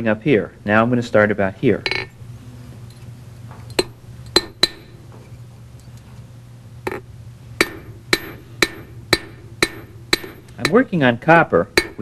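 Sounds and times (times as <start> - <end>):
hammer striking metal on anvil: 3.8 - 5.0, 7.6 - 10.9, 11.7 - 12.0.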